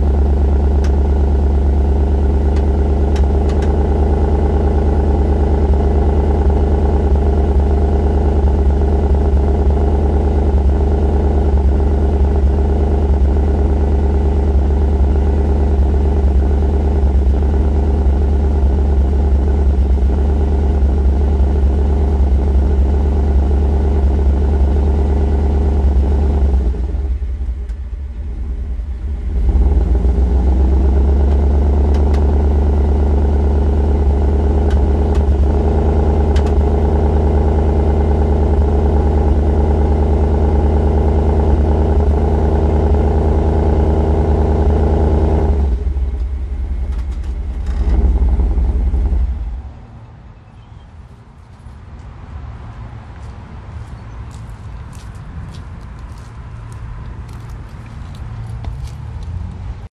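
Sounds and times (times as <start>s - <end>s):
misfiring engine exhaust pulse: 0.0s - 49.9s.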